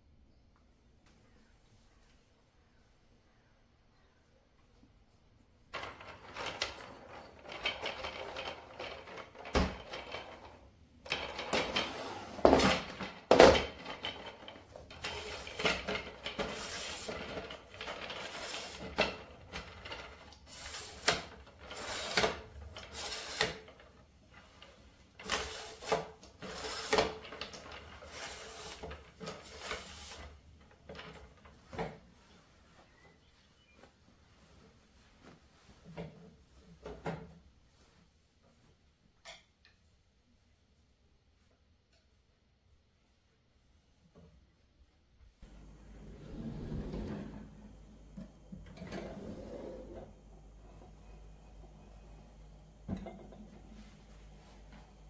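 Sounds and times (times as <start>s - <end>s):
wood scraping and rubbing: 45.4s - 55.0s.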